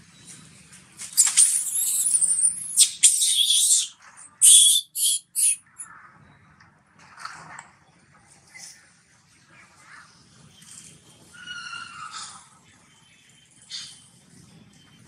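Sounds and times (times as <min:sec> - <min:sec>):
monkey screaming: 0:01.2 - 0:05.6.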